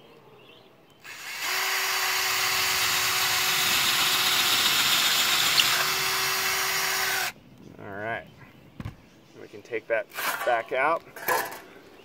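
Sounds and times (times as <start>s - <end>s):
cordless drill whining: 1.0s - 7.4s.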